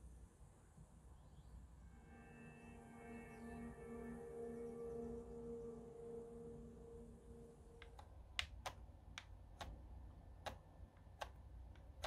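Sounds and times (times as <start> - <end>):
faint music tone: 0.0 - 12.0
game controller button clicks: 7.8 - 9.8, 10.4 - 12.0.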